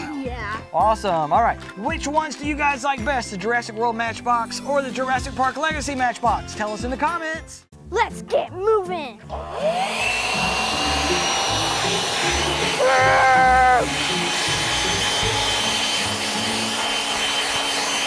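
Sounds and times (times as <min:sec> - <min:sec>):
leaf blower whining: 0:09.3 - 0:18.0
boy shouting: 0:12.8 - 0:13.9.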